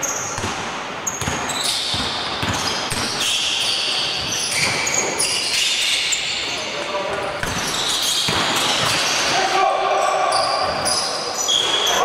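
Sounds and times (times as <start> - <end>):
sneakers squeaking on court floor: 0.0 - 9.4, 10.0 - 12.0
basketball bouncing: 0.3 - 3.4, 7.4 - 9.2.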